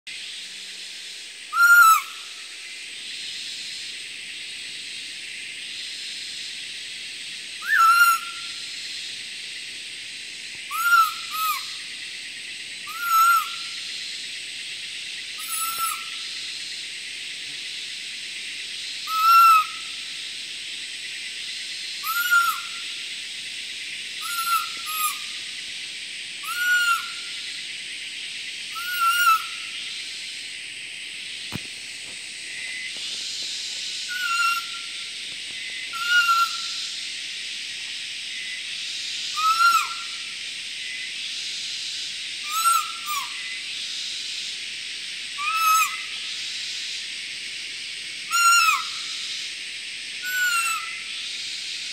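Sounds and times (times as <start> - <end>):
steady high hiss: 0.1 - 51.9
whistle-like deer call: 1.6 - 2.1, 7.6 - 8.4, 10.7 - 11.7, 22.0 - 22.8.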